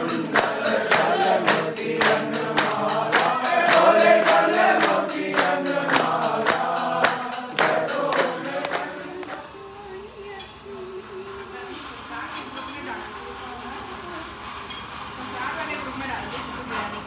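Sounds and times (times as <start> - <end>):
sharp percussion strikes: 0.0 - 9.5
group of voices singing: 0.0 - 10.1.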